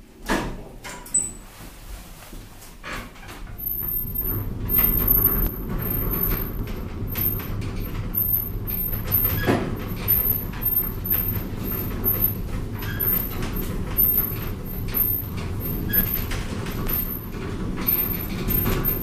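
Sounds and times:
elevator low rumble: 0.8s - 19.0s
light clicks and rattles: 3.2s - 19.0s
short squeak: 8.2s - 13.4s, 14.0s - 19.0s.

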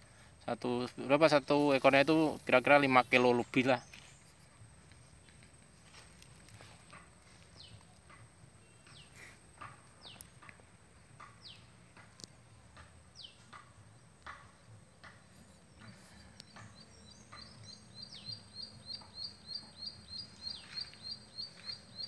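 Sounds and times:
bird repeated chirps: 6.9s - 22.0s.

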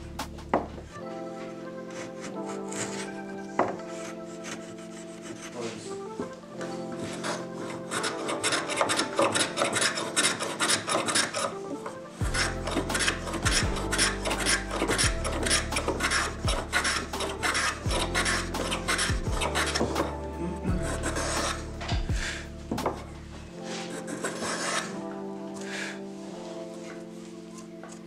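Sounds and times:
background music: 0.0s - 28.0s
hand plane shaving wood: 1.9s - 5.9s, 6.9s - 11.6s, 12.3s - 23.1s, 23.7s - 25.0s.

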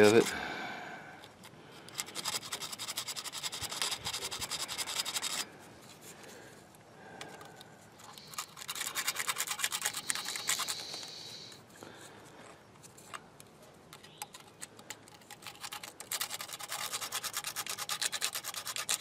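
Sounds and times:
emery paper scratching metal: 0.0s - 0.3s, 1.9s - 6.1s, 8.0s - 11.6s, 14.0s - 19.0s.

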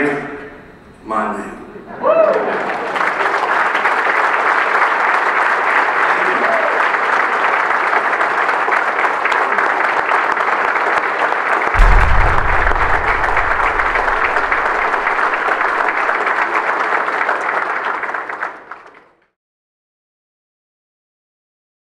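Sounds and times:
audience applauding: 2.3s - 11.8s, 14.1s - 19.1s
deep bass boom: 11.8s - 15.9s.

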